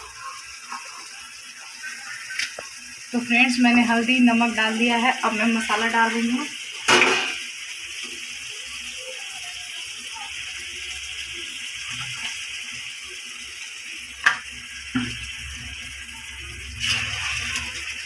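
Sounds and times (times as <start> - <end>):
liver sizzling in oil: 0.0 - 18.0.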